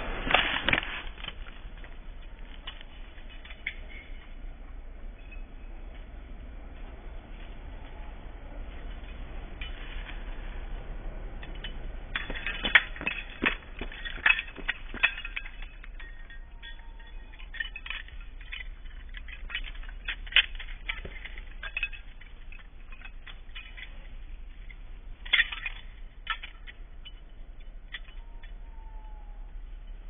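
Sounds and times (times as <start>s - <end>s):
collar and leash jingling: 11.4s - 29.0s.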